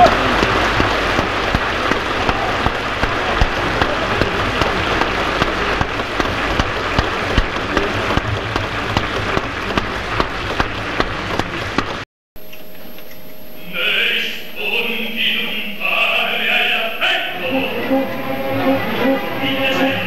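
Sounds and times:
audience applauding: 0.0s - 12.0s, 17.2s - 20.0s.

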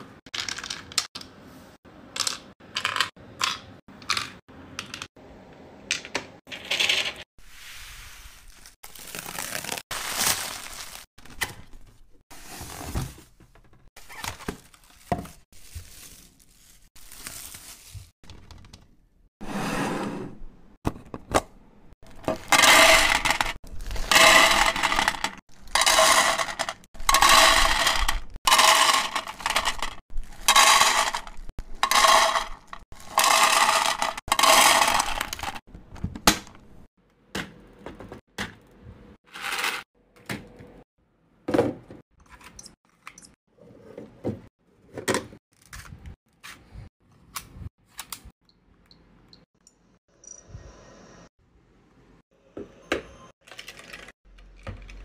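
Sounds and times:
packaging rustling and tearing: 8.4s - 11.4s, 14.0s - 18.1s.

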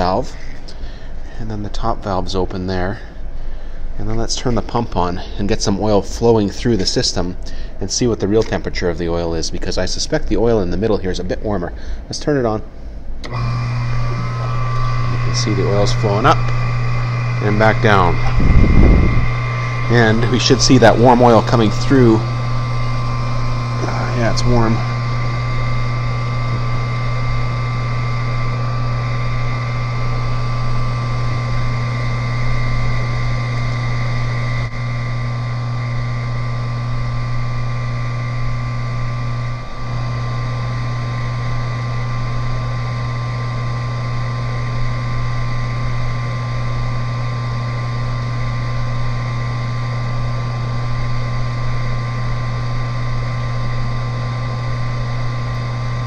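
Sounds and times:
electric pump humming: 0.0s - 56.0s.

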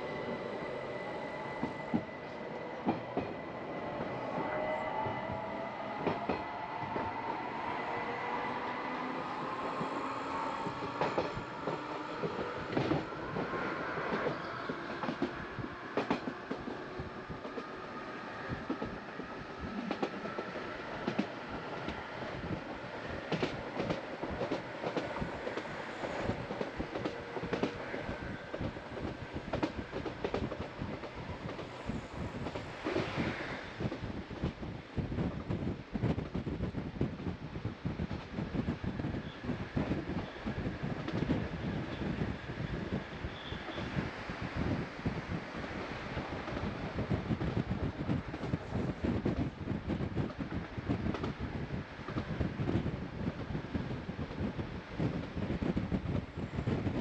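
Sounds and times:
train rolling noise: 0.0s - 57.0s
wheels clacking on rails: 0.1s - 36.8s.

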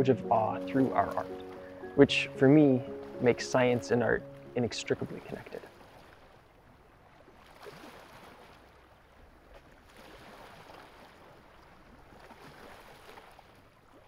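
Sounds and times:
water lapping and sloshing: 0.0s - 14.0s
small water splashes: 5.0s - 14.0s.

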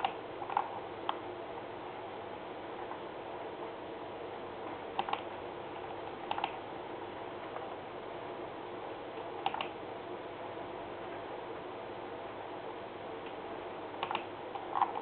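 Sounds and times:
room hum with faint tones: 0.0s - 15.0s
computer mouse double clicks: 14.0s - 14.3s.

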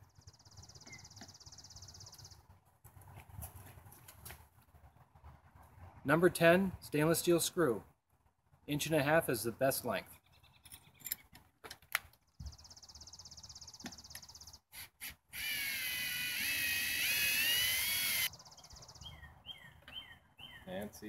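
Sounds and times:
cordless drill driving screw: 14.7s - 18.3s.

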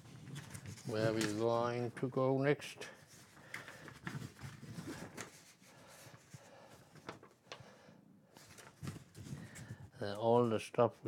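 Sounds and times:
paper rustling: 0.1s - 1.9s, 3.0s - 7.7s, 8.4s - 10.6s.

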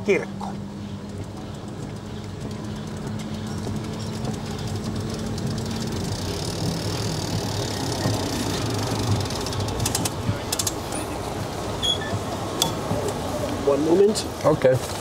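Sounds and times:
sharp clicks and rattles: 0.0s - 11.6s
wheels rumbling: 0.0s - 15.0s.

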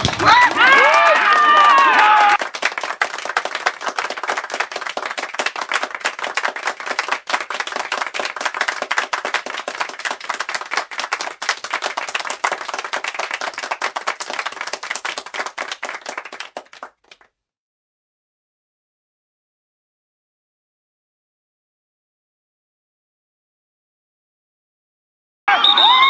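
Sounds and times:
crowd clapping: 0.0s - 17.3s, 25.5s - 26.0s.

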